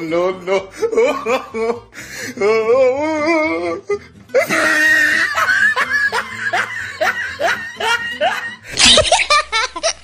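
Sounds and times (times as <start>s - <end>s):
music: 0.0s - 10.0s
quick rising laughter: 8.3s - 9.4s.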